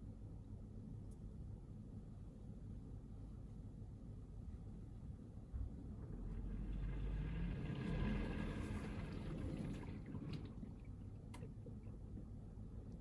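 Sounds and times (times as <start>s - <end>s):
dishwasher pump humming: 5.7s - 13.0s
water spraying and sloshing: 6.0s - 11.4s.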